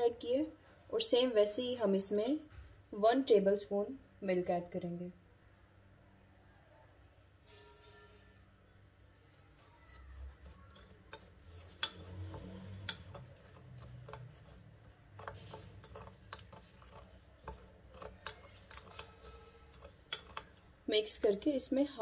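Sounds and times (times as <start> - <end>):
metal spoon stirring in ceramic bowl: 9.1 - 22.0.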